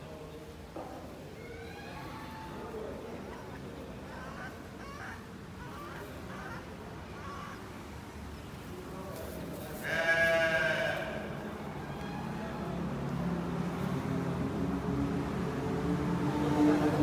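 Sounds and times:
faint background voices: 0:00.0 - 0:17.0
sheep bleating: 0:09.8 - 0:11.4.

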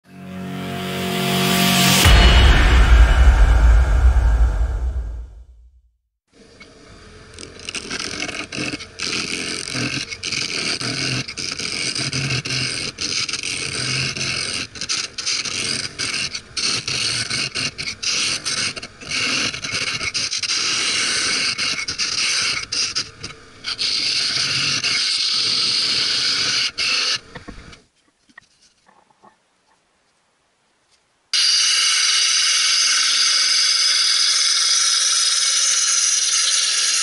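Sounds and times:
lathe tool scraping wood: 0:07.4 - 0:27.4.

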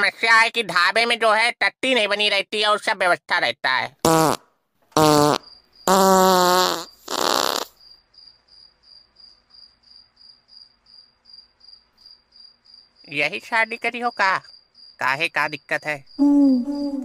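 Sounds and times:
cartoon fart sound effects: 0:04.0 - 0:07.8
cricket chirps: 0:05.0 - 0:17.0.

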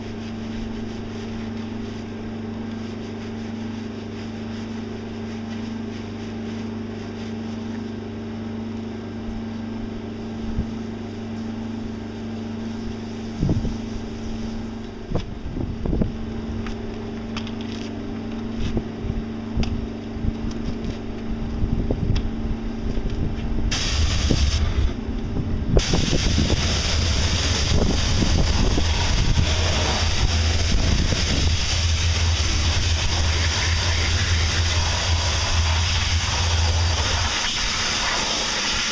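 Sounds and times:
machine hum: 0:08.2 - 0:38.9
pressure washer spray hissing: 0:23.7 - 0:24.9, 0:25.8 - 0:38.9.

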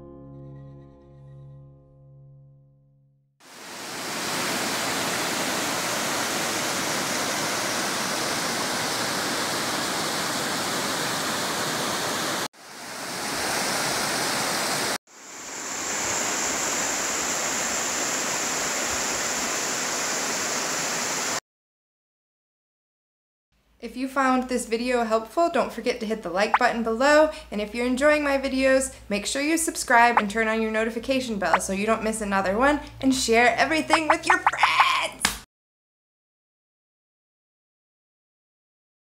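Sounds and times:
whitewater rushing over rocks: 0:03.5 - 0:21.4.

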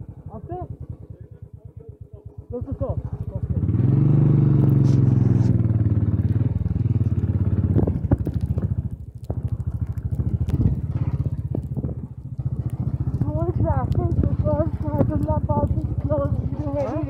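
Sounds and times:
sharp knocks over rough track: 0:04.4 - 0:17.0
motorcycle engine thumping: 0:04.6 - 0:17.0.

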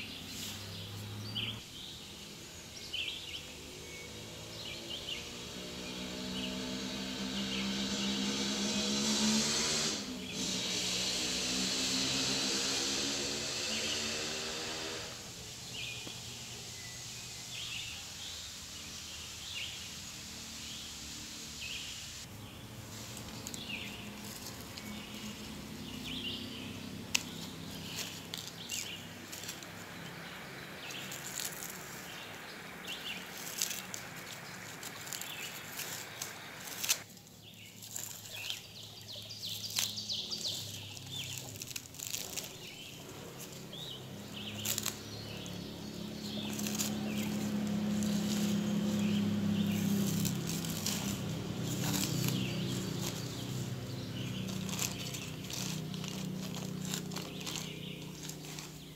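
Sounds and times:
small birds chirping: 0:00.0 - 0:58.9
plastic wrap crinkling: 0:39.4 - 0:43.6, 0:46.4 - 0:58.9.

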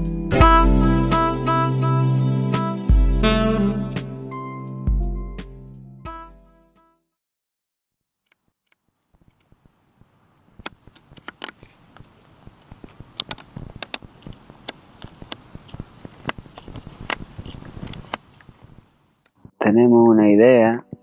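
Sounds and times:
rustle on grass: 0:10.5 - 0:18.9.

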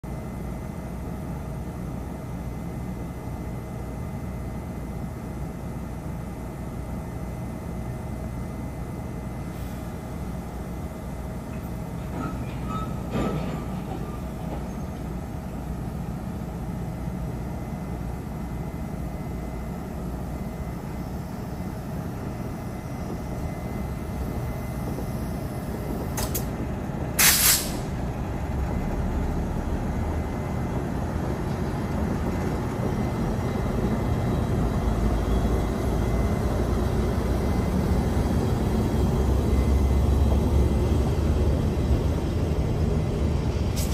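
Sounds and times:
train rumble with faint whine: 0:00.0 - 0:43.9
compressed-air hiss: 0:27.2 - 0:27.9.

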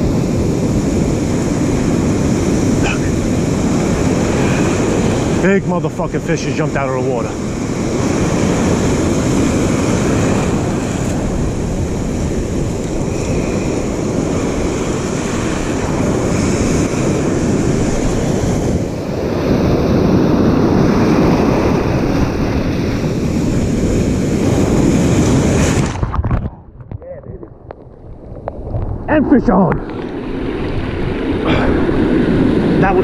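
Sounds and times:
ocean surf breaking: 0:00.0 - 0:26.5, 0:27.2 - 0:33.0
wave washing over camera: 0:00.0 - 0:33.0
wind buffeting microphone: 0:00.0 - 0:33.0.

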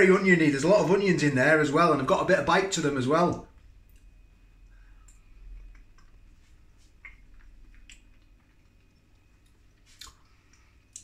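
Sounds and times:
faint chewing: 0:03.6 - 0:11.0
wet mouth clicks: 0:07.0 - 0:11.0.

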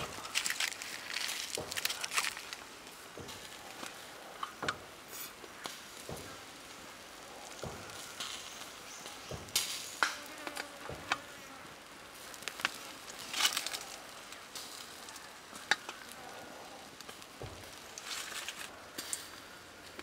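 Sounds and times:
faint steady hiss: 0:00.0 - 0:20.0
skewers clicking on grill grate: 0:07.4 - 0:11.3, 0:12.2 - 0:16.3.

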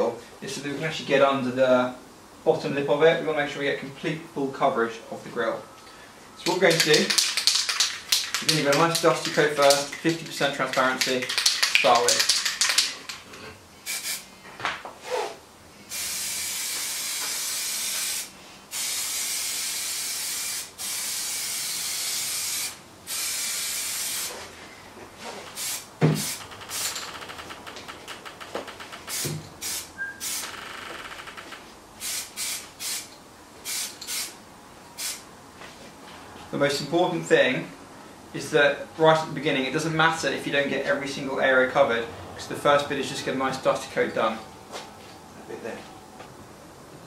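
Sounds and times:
aerosol can spraying: 0:06.7 - 0:12.9, 0:13.9 - 0:14.2, 0:15.9 - 0:24.4, 0:25.6 - 0:26.9, 0:29.1 - 0:30.5, 0:32.0 - 0:34.4, 0:35.0 - 0:35.2.

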